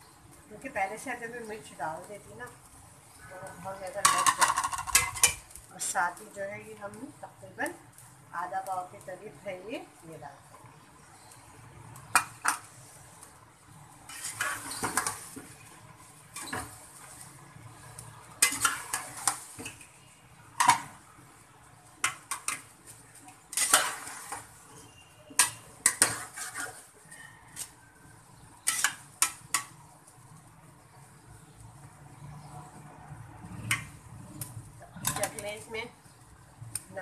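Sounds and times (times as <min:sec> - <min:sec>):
metal spatula scraping pot: 0:04.0 - 0:05.5, 0:14.0 - 0:15.6, 0:16.3 - 0:17.2, 0:18.4 - 0:19.9, 0:23.5 - 0:27.8, 0:28.6 - 0:29.7, 0:34.9 - 0:35.7.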